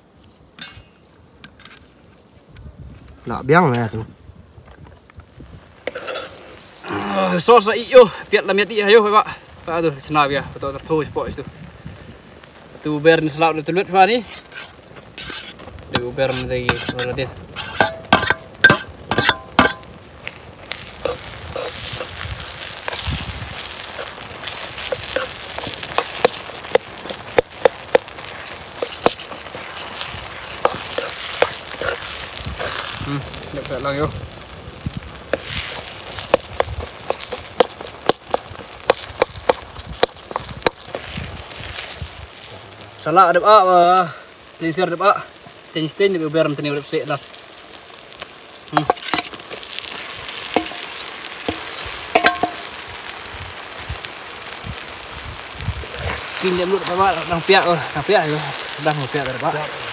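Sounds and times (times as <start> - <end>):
food sizzling in a pan: 0.0 - 59.9
wood fire crackling: 0.0 - 59.9
sharp pops and knocks: 14.3 - 33.0, 34.9 - 41.4, 48.7 - 52.9
metal spoon striking pan: 16.7 - 19.9, 51.5 - 52.7.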